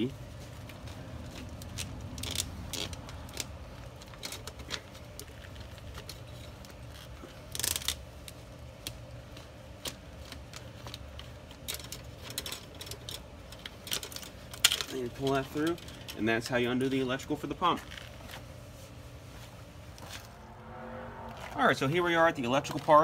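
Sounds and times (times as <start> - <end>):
conduit fitting clicking and scraping: 0.6 - 16.3
steady low hum: 17.5 - 23.0.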